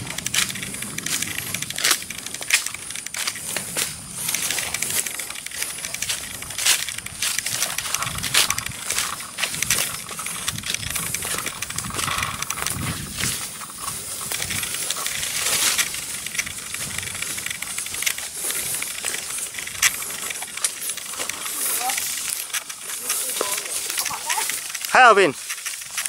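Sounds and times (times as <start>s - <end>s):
footsteps crunching through leaves: 0.0s - 26.0s
leaves and twigs rustling: 0.0s - 26.0s.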